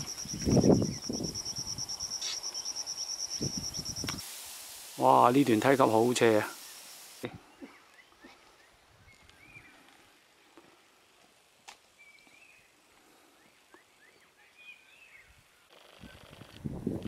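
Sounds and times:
faint bird chirps: 0.0s - 4.2s.

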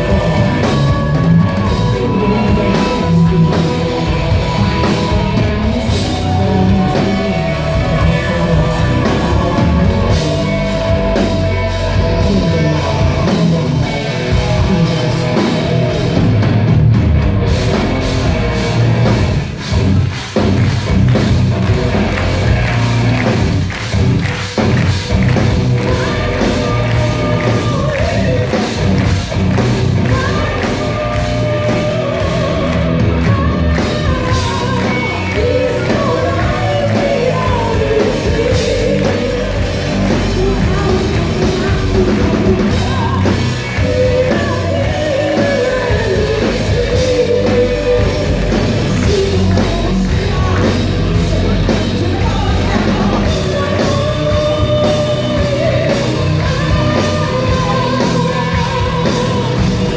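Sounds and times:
woman singing: 0.0s - 15.5s, 25.8s - 29.2s, 30.0s - 59.9s
live rock band playing: 0.0s - 59.9s.

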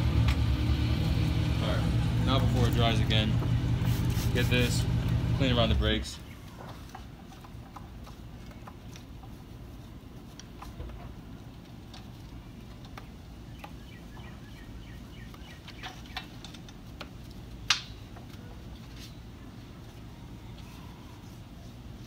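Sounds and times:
steady low rumble: 0.0s - 6.4s
brush scrubbing car wheel: 2.3s - 4.9s
brush clicking against wheel: 6.7s - 14.4s.

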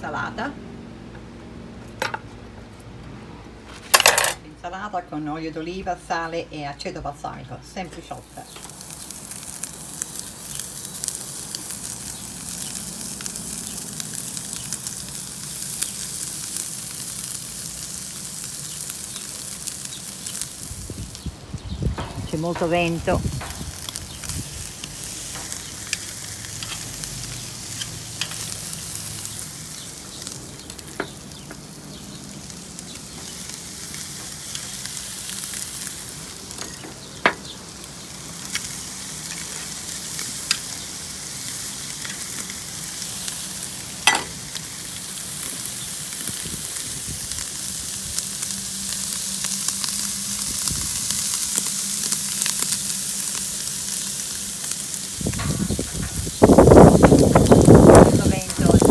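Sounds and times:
steaks sizzling on a grill: 0.0s - 58.9s
sharp crackles and snaps: 8.3s - 58.9s.

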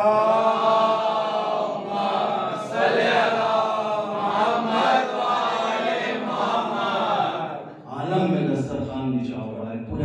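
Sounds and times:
melodic chanting: 0.0s - 7.9s.

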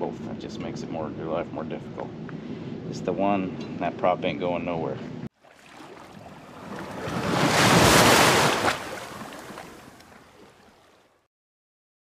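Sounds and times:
wave washing in: 5.5s - 11.0s.

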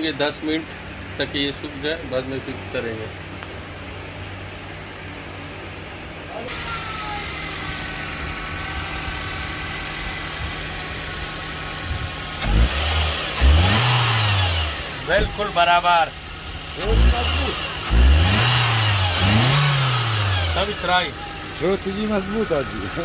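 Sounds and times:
low background hum: 0.0s - 12.5s
car engine idling and revving: 0.0s - 23.0s.

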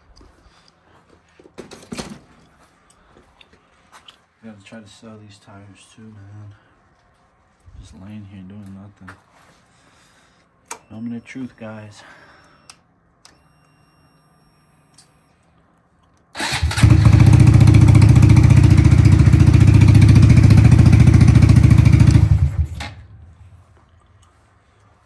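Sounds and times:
motorcycle engine idling: 16.5s - 23.7s.

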